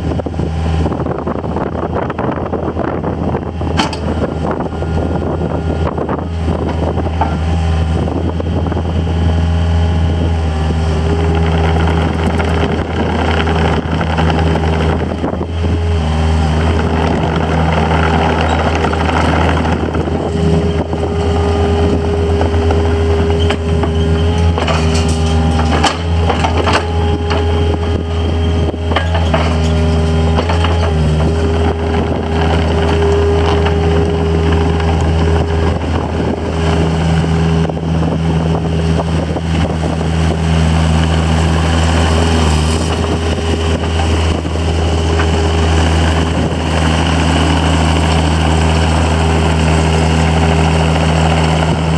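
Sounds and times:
excavator diesel engine running: 0.0 - 51.9
metal clanks: 23.4 - 27.4.

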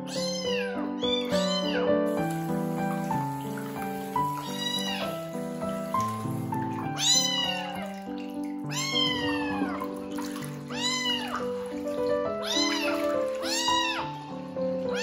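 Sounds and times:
kitten meowing: 0.0 - 2.0, 4.3 - 5.2, 7.0 - 7.9, 8.7 - 9.9, 10.7 - 11.5, 12.4 - 14.3
background music: 0.0 - 15.0.

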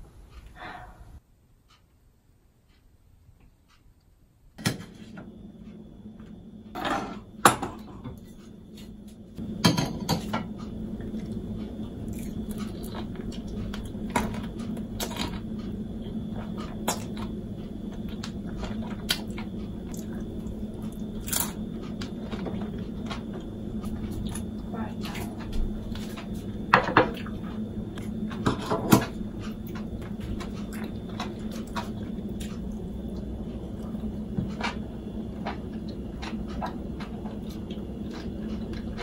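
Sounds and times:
steady low hum: 0.0 - 39.0
dishes clicking and knocking: 9.6 - 10.5
chewing and biting food: 10.6 - 39.0.

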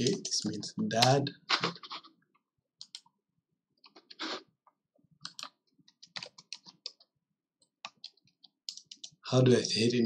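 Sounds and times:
keyboard typing: 0.0 - 2.0, 2.8 - 3.1, 5.2 - 9.2.

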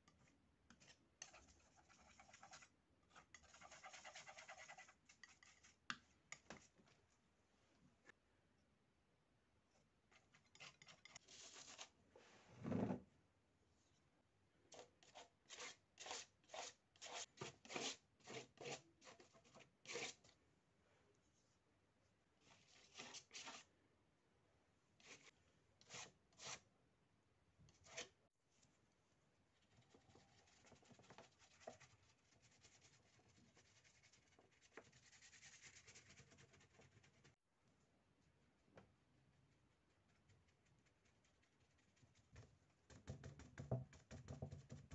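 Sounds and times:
palette knife scraping paint on paper: 0.1 - 6.7, 10.1 - 11.9, 14.7 - 20.3, 22.4 - 23.7, 25.0 - 26.6, 27.7 - 28.2
paintbrush scratching on surface: 0.7 - 5.9, 10.1 - 11.9, 22.4 - 23.7, 25.0 - 26.6, 29.7 - 37.4.

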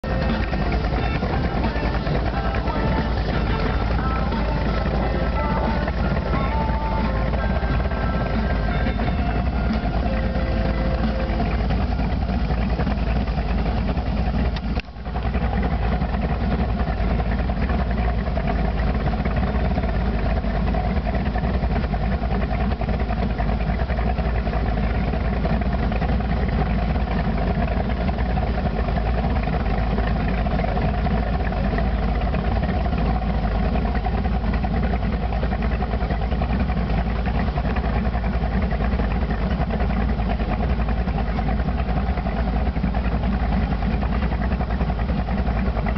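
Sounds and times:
boat engine idling: 0.0 - 45.9.

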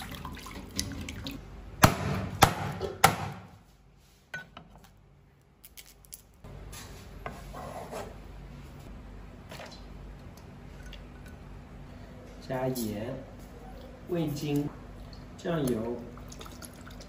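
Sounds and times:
water sloshing in a bowl: 0.0 - 1.4, 14.4 - 17.0.

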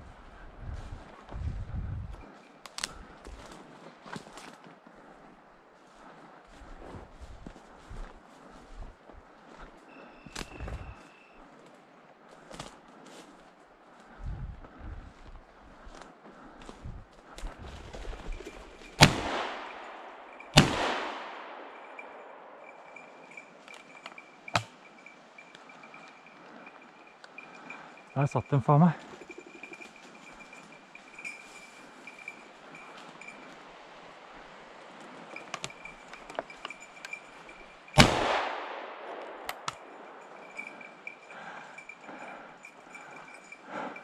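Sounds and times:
shotgun shots echoing: 19.0 - 22.7, 38.0 - 40.2.

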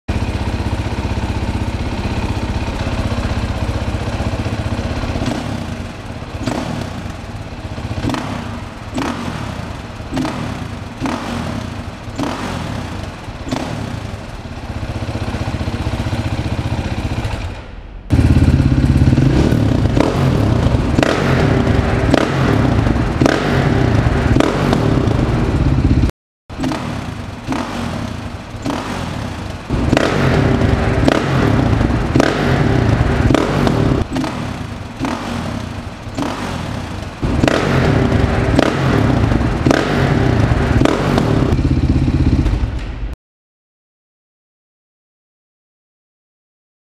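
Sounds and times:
motorcycle engine idling: 0.1 - 43.2
motorcycle engine throttle blips: 0.1 - 43.2.

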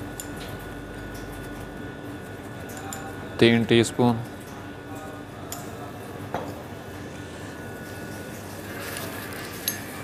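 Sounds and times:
low background hum: 0.0 - 10.0.

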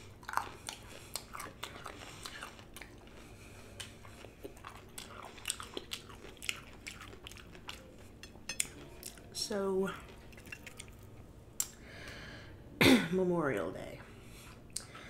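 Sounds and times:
crisp chewing crunches: 0.0 - 11.8.

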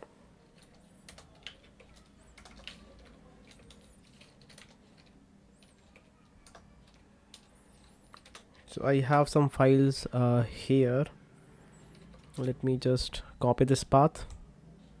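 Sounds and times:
keyboard typing clicks: 0.6 - 8.6.

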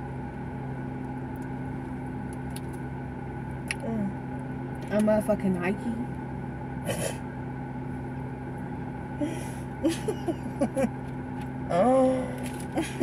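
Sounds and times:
car cabin hum: 0.0 - 13.0
person humming: 11.7 - 13.0.

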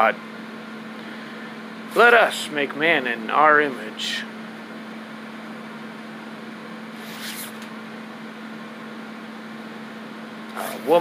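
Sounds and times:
steady electrical hum: 0.0 - 11.0
room noise: 6.3 - 7.9.

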